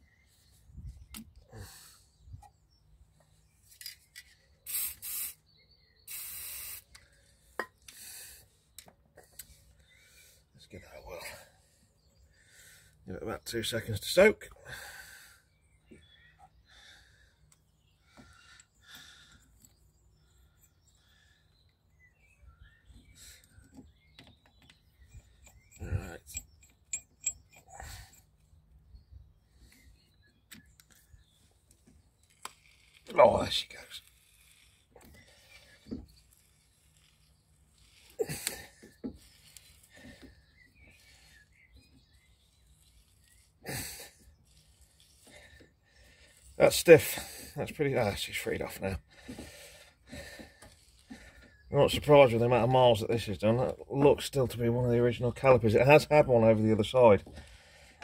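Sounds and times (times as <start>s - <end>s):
aerosol spray hissing: 4.7s - 5.4s, 6.1s - 6.9s
metal tools clinking: 25.2s - 28.3s.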